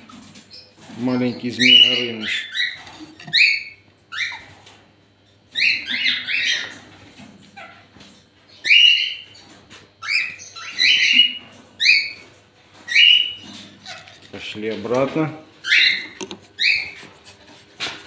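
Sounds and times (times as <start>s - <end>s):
cockatiel chick squawking: 1.6s - 4.7s, 5.5s - 7.9s, 8.5s - 9.4s, 10.0s - 12.2s, 12.9s - 14.2s, 15.6s - 18.0s.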